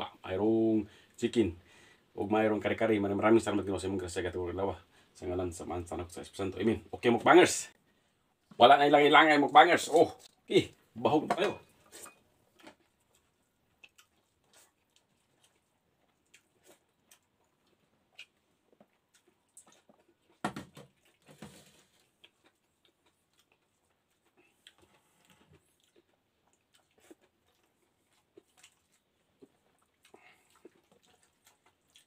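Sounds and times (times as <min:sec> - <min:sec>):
chewing clicks and smacks: 0:12.6 - 0:21.3, 0:22.0 - 0:32.0.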